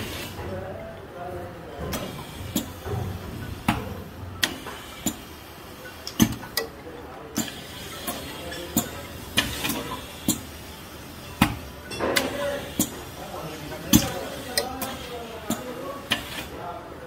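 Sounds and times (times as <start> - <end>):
sharp mechanical clacks: 4.4 - 5.3.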